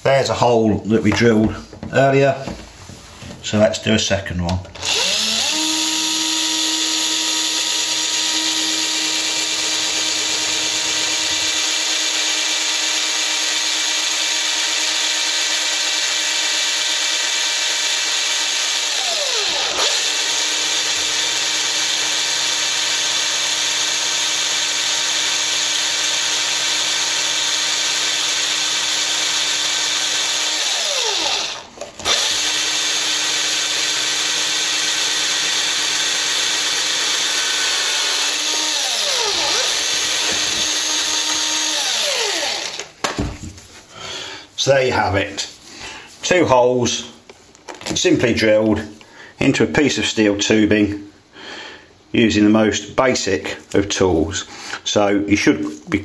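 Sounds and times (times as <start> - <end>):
cordless drill cutting steel: 4.8 - 43.0.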